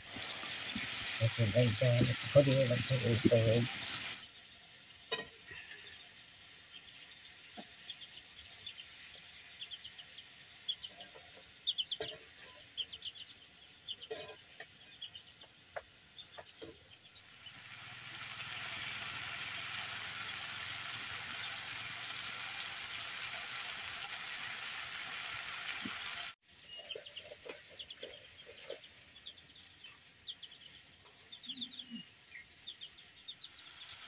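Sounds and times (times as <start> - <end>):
chickens clucking: 0.0 - 4.2, 7.2 - 34.0
food sizzling in pan: 0.0 - 5.1, 17.2 - 26.4, 33.4 - 34.0.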